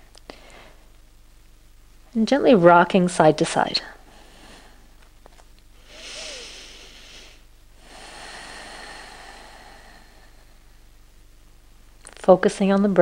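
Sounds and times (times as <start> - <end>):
person breathing: 0.3 - 0.9, 4.0 - 5.0, 5.8 - 11.0.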